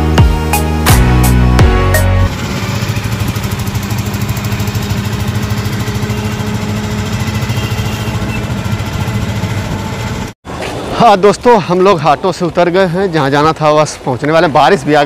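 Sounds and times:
auto-rickshaw engine throbbing: 0:00.0 - 0:10.4.

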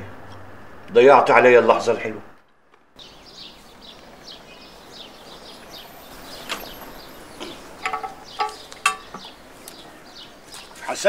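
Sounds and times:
birds chirping: 0:02.4 - 0:11.0.

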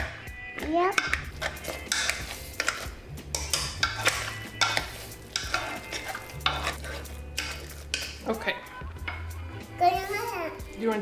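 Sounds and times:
potato masher squishing potatoes: 0:01.0 - 0:08.2.

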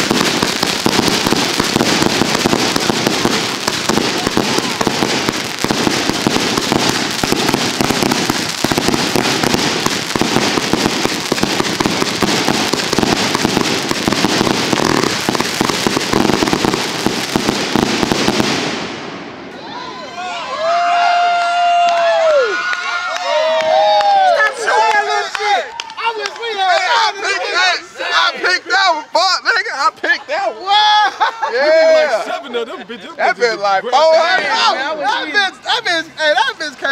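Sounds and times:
firework pops and crackles: 0:00.0 - 0:19.2.

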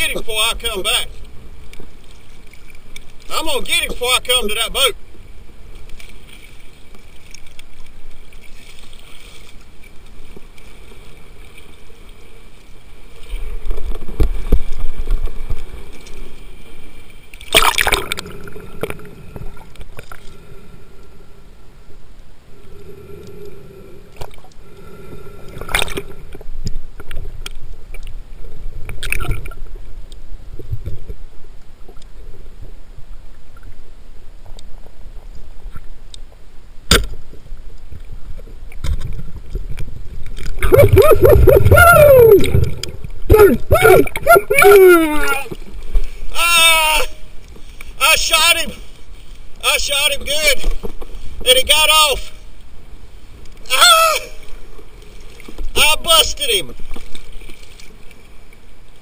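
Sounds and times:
underwater gurgling and sloshing: 0:00.0 - 0:46.4, 0:47.0 - 0:59.0
low underwater rumble: 0:37.2 - 0:46.3.

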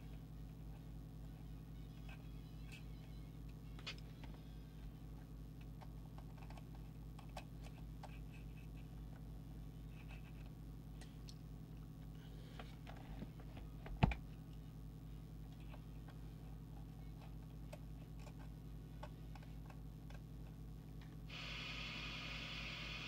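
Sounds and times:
low hum: 0:00.0 - 0:23.0
steady hiss: 0:21.3 - 0:23.0.

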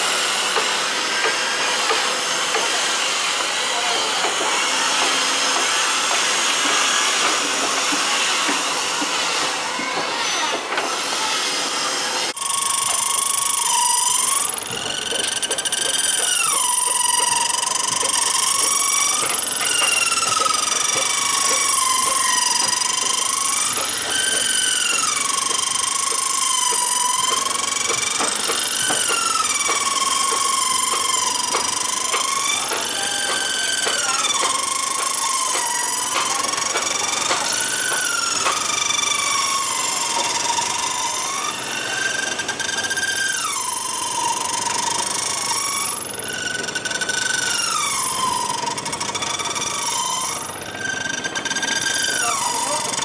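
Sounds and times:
power tools hissing: 0:00.0 - 0:53.0
high metallic squeal: 0:11.4 - 0:53.0.

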